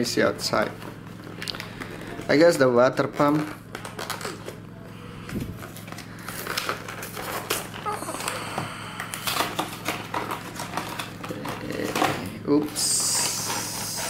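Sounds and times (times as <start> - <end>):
steady low hum: 0.0 - 14.0
plastic wrapping crinkling: 3.0 - 4.7, 5.3 - 14.0.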